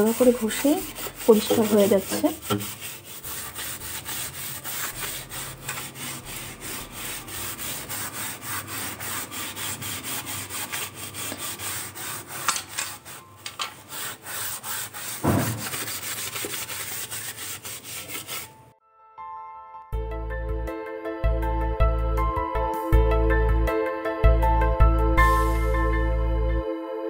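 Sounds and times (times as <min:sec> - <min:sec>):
steel wool scrubbing tiles: 0:00.0 - 0:18.6
loud thump: 0:15.2 - 0:15.8.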